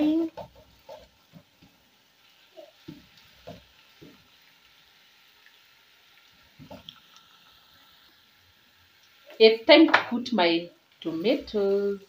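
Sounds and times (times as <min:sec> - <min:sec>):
wooden spoon scraping a pot: 0:00.0 - 0:01.8
food sizzling in oil: 0:00.0 - 0:12.0.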